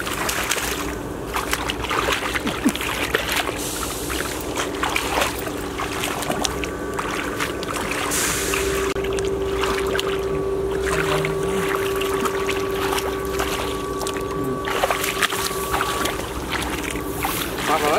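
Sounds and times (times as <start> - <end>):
hands splashing in muddy water: 0.0 - 17.9
steady low hum: 0.0 - 17.9.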